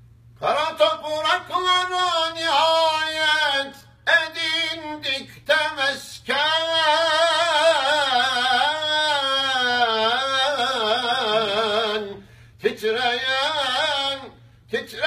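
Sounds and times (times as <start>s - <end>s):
man singing unaccompanied: 0.4s - 15.0s.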